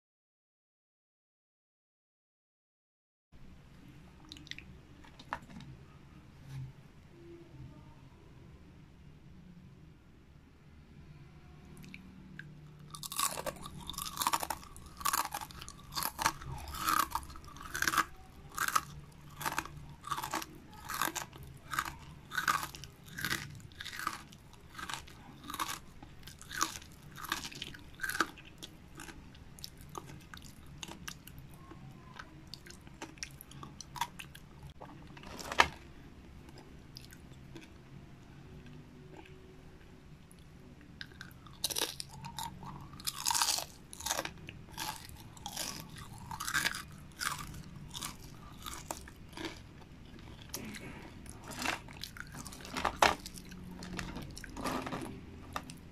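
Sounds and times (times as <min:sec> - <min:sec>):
crunchy food being chewed: 0:04.2 - 0:05.8, 0:11.8 - 0:37.8, 0:41.0 - 0:55.9.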